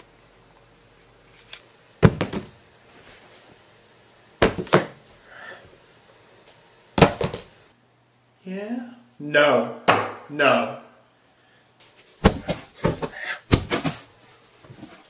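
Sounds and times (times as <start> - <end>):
books slapping onto tiled floor: 2.0 - 2.6, 4.4 - 5.0, 7.0 - 7.5, 12.2 - 14.1.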